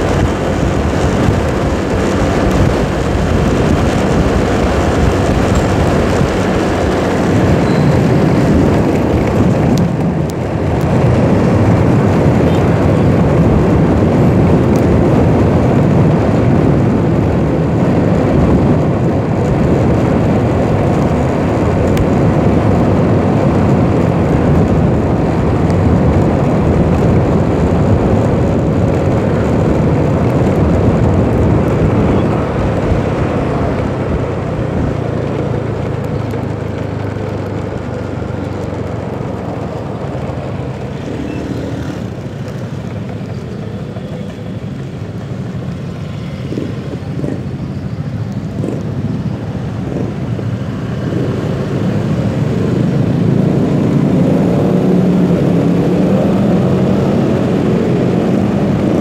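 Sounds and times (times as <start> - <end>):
road noise: 0.0 - 59.0
scooter engine: 0.0 - 59.0
wind buffeting microphone: 0.0 - 59.0.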